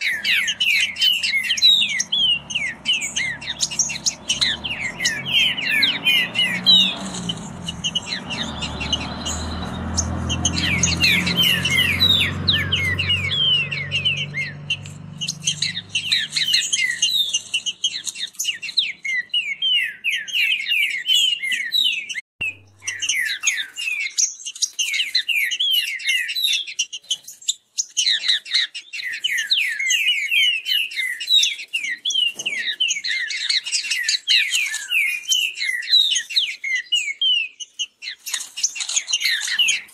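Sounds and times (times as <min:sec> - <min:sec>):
birds singing whistled phrases: 0:00.0 - 0:39.9.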